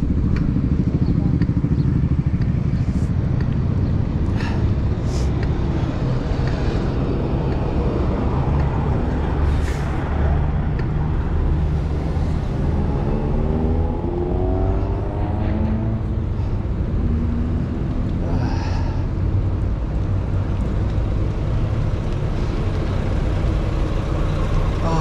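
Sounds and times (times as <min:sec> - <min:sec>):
low engine rumble: 0:00.0 - 0:25.0
engine revving: 0:04.3 - 0:19.0.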